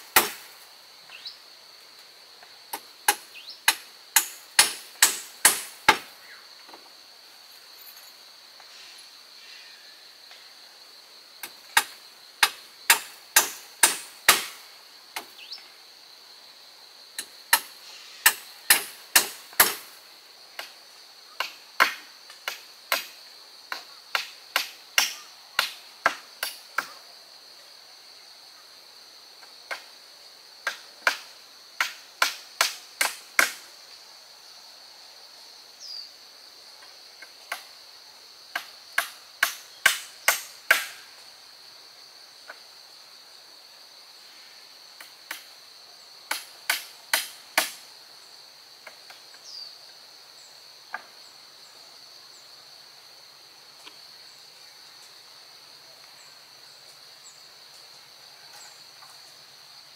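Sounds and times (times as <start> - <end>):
hand tool striking wood: 0.0 - 0.5, 2.7 - 6.1, 11.8 - 14.6, 17.5 - 19.9, 23.7 - 27.0, 31.8 - 33.6, 38.6 - 41.0, 46.3 - 47.8
high insect drone: 0.0 - 59.9.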